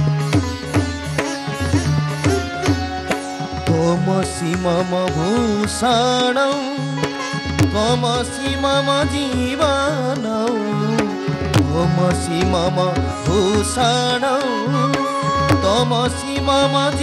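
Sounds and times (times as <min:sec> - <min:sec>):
ornamented melody: 0:00.0 - 0:17.0
drum strokes: 0:00.3 - 0:03.8.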